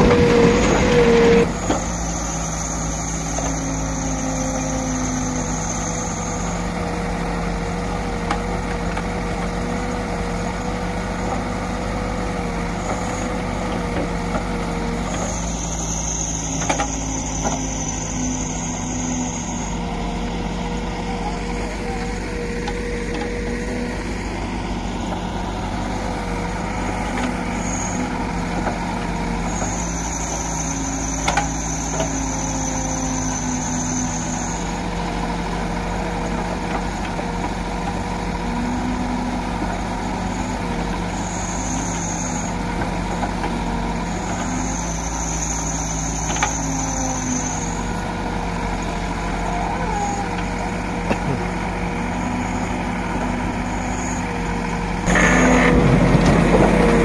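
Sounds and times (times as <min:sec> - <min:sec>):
diesel engine running: 0:00.0 - 0:57.0
high whine: 0:53.7 - 0:57.0.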